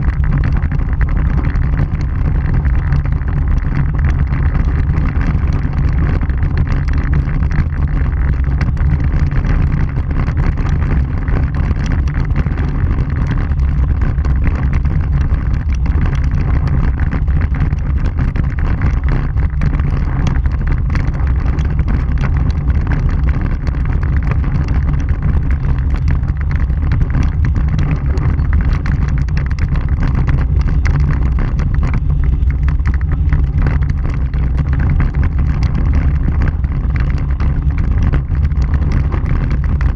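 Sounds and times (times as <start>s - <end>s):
tyres rumbling on gravel: 0.0s - 39.9s.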